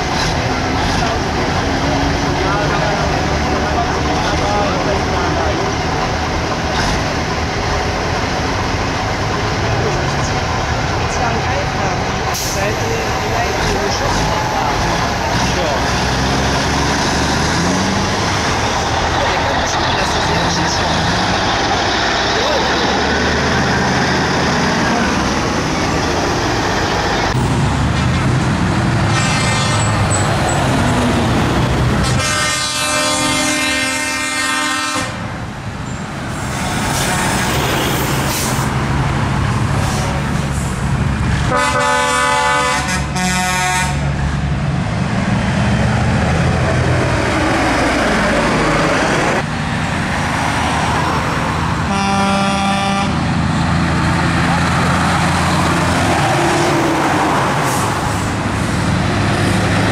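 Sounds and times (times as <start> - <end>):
heavy trucks driving past: 0.0 - 59.9
truck air horn blasts: 32.0 - 35.2, 41.5 - 44.0, 51.9 - 53.3.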